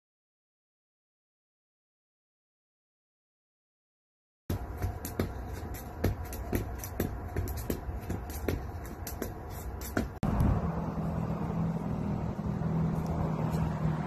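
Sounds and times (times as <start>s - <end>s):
skipping rope slapping concrete: 4.5s - 10.2s
steady low rumble: 4.5s - 13.8s.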